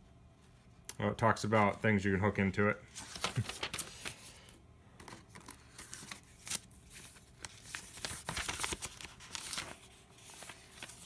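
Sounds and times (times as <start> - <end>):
paper rustling and crinkling: 2.9 - 11.0.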